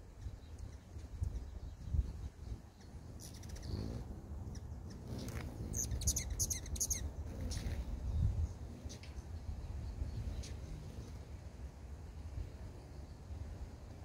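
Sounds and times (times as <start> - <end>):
hummingbird chip notes: 0.2 - 9.0.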